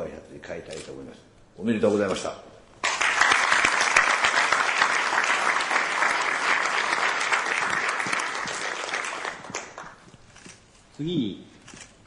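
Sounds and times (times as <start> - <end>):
large audience applauding: 2.8 - 10.0.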